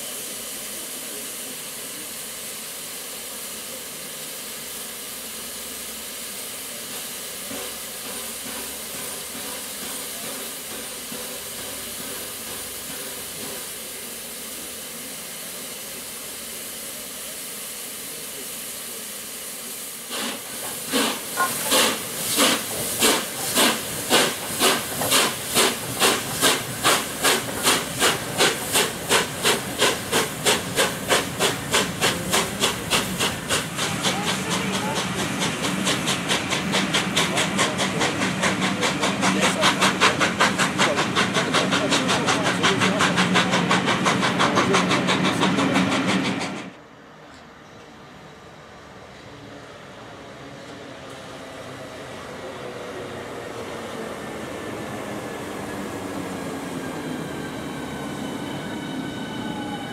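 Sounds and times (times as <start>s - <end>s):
steam hissing: 0.0s - 46.8s, 49.0s - 59.9s
steam locomotive exhaust beats: 0.0s - 46.8s.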